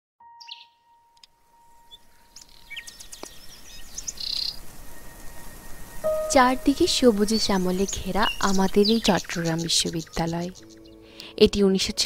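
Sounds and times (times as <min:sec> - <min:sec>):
birds chirping and calling: 0:01.9 - 0:11.4.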